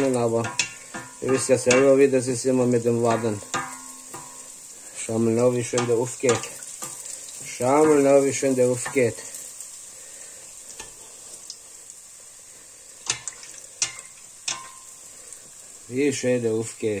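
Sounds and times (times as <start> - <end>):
dough deep-frying in oil: 0.0 - 17.0.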